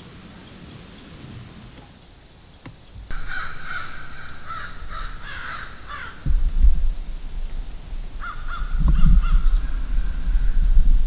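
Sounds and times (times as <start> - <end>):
crows cawing: 3.1 - 6.3, 8.2 - 10.5.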